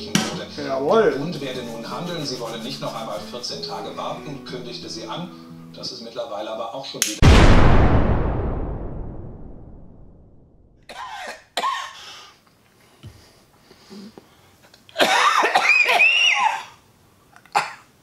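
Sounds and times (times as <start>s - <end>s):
explosion rumble: 7.2s - 10.8s
man coughing: 10.9s - 12.0s, 15.0s - 16.8s, 17.6s - 17.9s.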